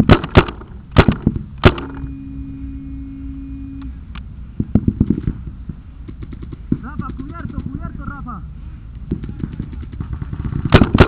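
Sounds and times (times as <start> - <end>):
steady low hum: 0.0 - 11.0
paintball markers firing: 6.0 - 7.9.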